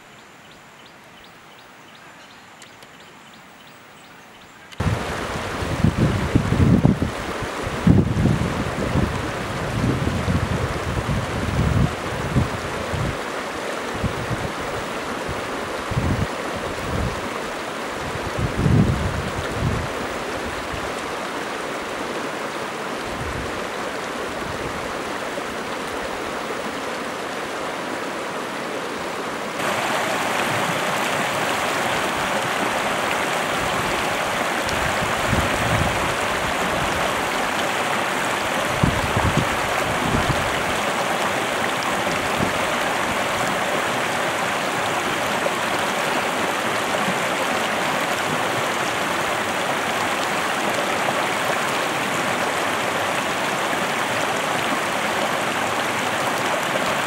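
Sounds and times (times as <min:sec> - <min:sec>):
stream rushing over stones: 0:04.7 - 0:57.0.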